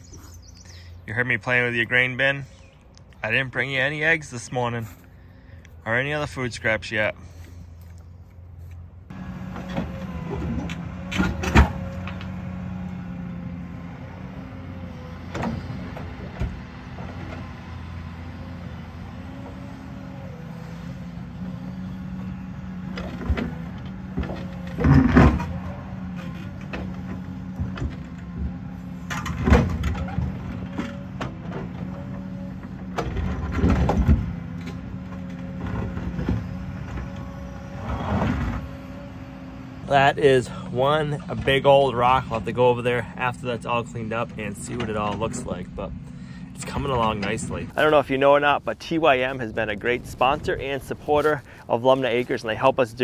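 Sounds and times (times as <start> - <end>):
excavator diesel engine: 0.0 - 53.0
hydraulic whine: 9.1 - 42.8
bucket scraping boulders: 23.0 - 28.2.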